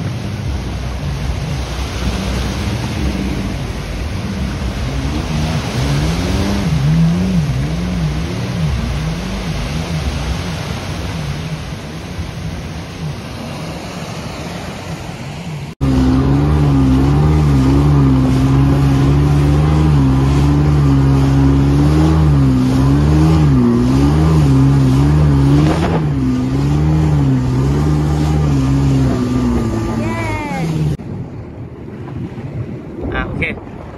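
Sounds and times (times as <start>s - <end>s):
jet ski engine: 0.0s - 33.9s
splashing spray and surf: 0.0s - 33.9s.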